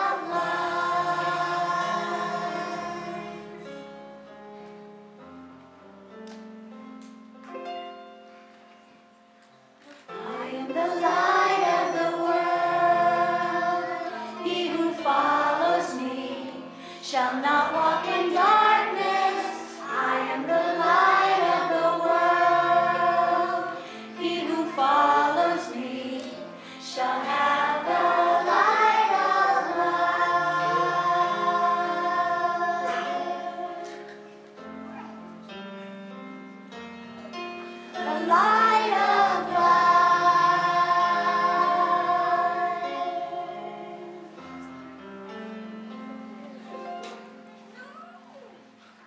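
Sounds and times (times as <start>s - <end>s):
children's choir singing: 0.0s - 4.0s, 10.0s - 35.7s, 37.5s - 44.7s.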